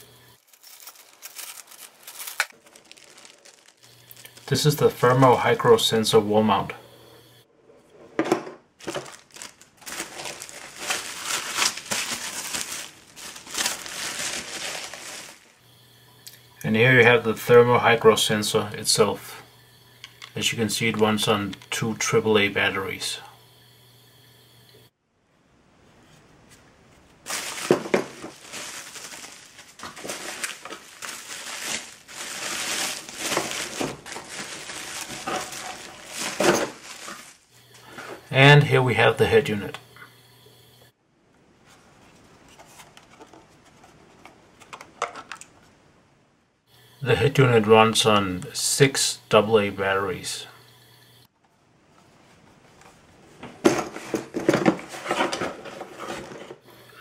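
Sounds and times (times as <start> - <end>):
bubble wrap crinkling: 0.0 - 5.3, 8.8 - 15.6, 27.2 - 37.5.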